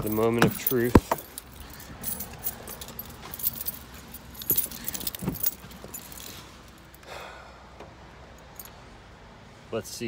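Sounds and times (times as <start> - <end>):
keys jangling: 0.0 - 6.4.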